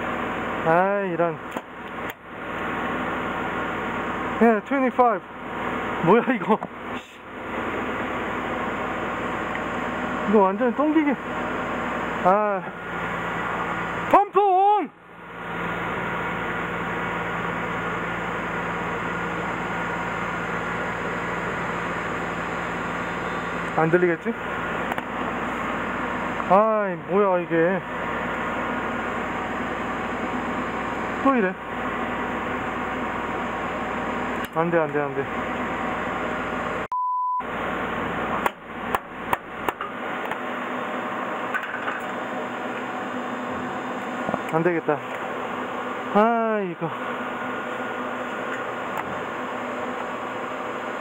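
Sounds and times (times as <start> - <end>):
machine hum: 0.0 - 51.0
censor bleep: 36.9 - 37.5.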